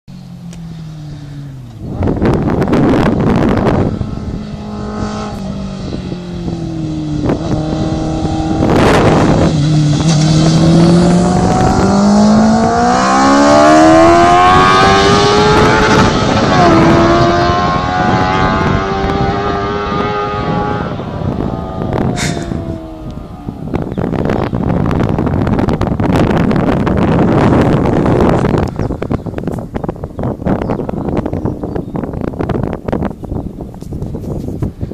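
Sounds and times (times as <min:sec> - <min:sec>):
racing engine accelerating hard: 0:01.9 - 0:24.0.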